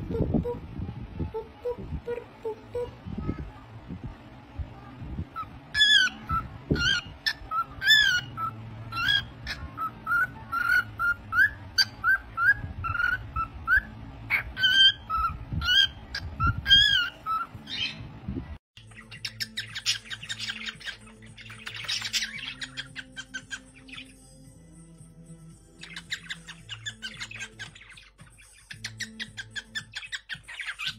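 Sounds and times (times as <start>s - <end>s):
cockatiel whistling: 5.4s - 18.0s
scratchy bird chatter: 18.8s - 24.2s.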